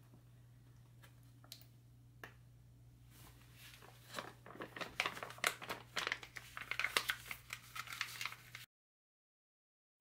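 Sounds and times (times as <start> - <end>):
plastic pouch crinkling: 3.6 - 8.7.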